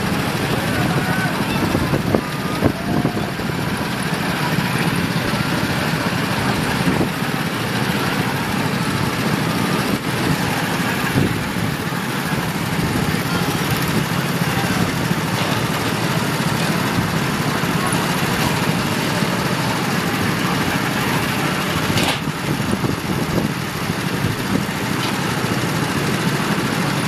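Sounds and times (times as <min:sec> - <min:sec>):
go-kart engines droning: 0:00.0 - 0:27.0.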